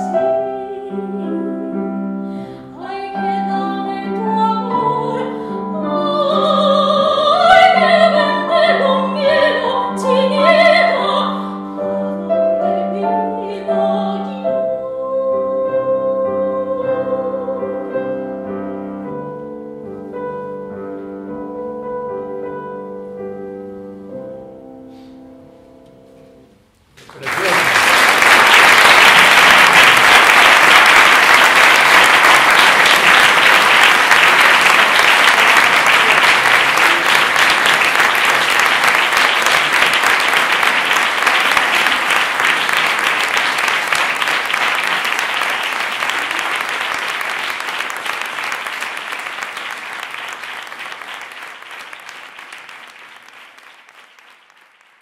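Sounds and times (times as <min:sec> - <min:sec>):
audience applause: 0:27.0 - 0:55.0.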